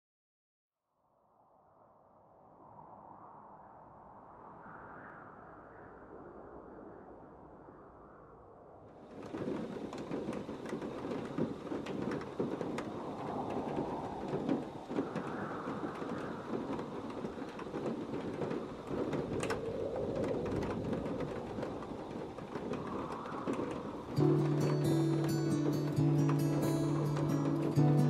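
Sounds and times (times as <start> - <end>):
rumbling noise: 2.7 - 28.0
clicks and crackles: 9.1 - 28.0
music with low chord: 24.2 - 28.0.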